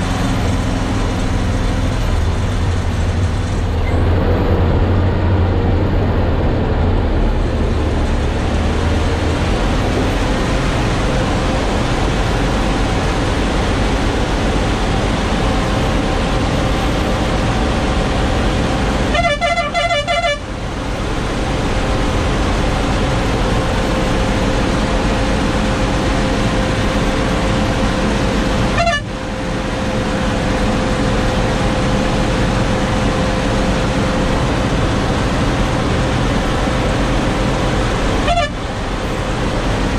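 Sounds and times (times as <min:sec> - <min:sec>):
truck diesel engine running: 0:00.0 - 0:39.9
truck horn: 0:18.8 - 0:20.7, 0:28.7 - 0:29.3, 0:38.2 - 0:38.8.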